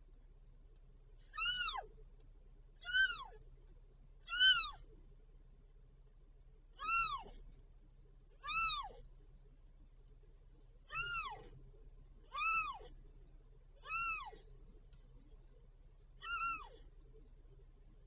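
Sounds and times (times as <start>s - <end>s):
kitten mewing: 6.8s - 7.3s, 10.9s - 11.4s, 13.8s - 14.4s.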